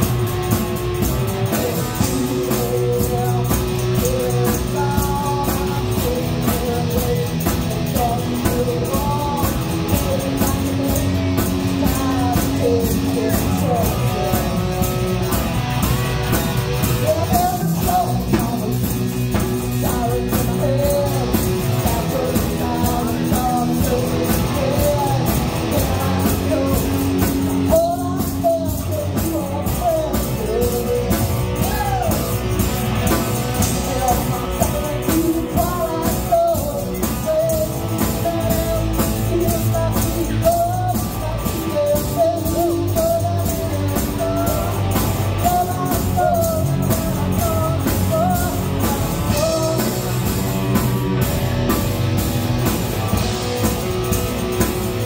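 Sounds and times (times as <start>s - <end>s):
woman singing lead: 0.0s - 51.8s
bass guitar: 0.0s - 55.0s
drum kit with cymbals: 0.0s - 55.0s
electric guitar: 0.0s - 55.0s.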